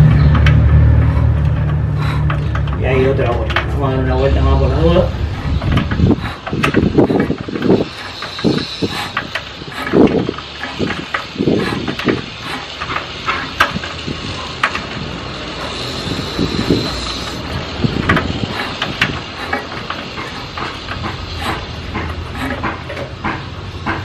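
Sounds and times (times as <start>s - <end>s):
ratchet wrench clicking: 5.2s - 24.0s
metal tool knocking on engine: 5.3s - 24.0s.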